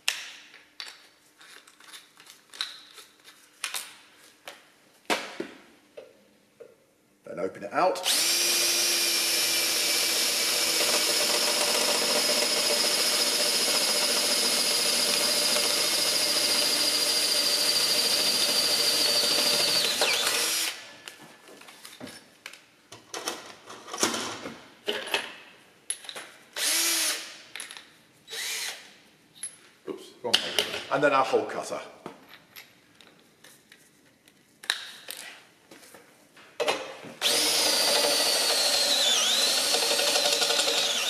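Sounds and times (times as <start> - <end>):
cordless drill boring through steel: 8.0 - 20.8, 26.6 - 27.3, 28.3 - 28.8, 37.2 - 41.0.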